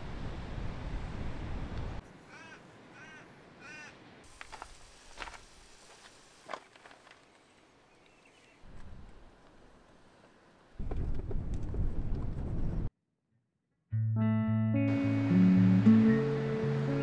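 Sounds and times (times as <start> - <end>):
crow cawing: 2.2 - 4.0.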